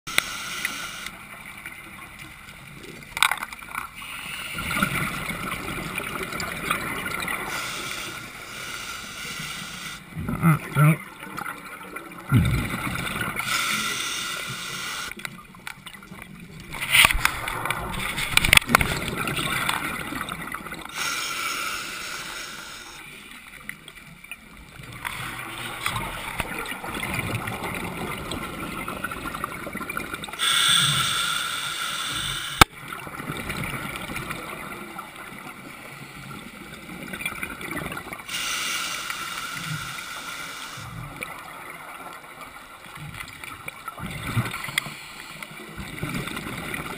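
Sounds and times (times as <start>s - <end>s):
regulator hiss: 0.1s - 1.2s, 7.4s - 10.0s, 13.4s - 15.2s, 21.0s - 23.2s, 30.4s - 32.7s, 38.3s - 41.0s
scuba bubbles gurgling: 0.1s - 46.9s.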